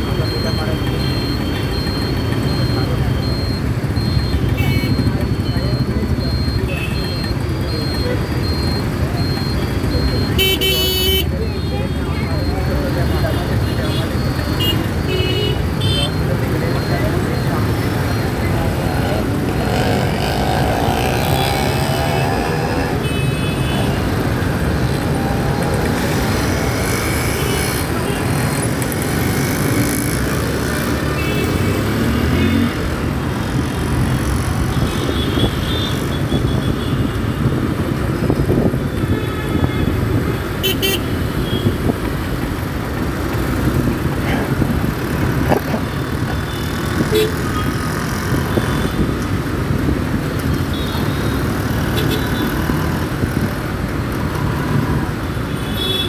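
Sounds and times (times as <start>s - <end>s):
vehicle engines running: 0.0s - 55.7s
vehicle horns tooting: 10.3s - 12.2s, 18.8s - 24.3s, 34.6s - 37.4s, 38.9s - 41.9s, 46.3s - 47.9s, 50.6s - 52.8s, 55.5s - 56.0s.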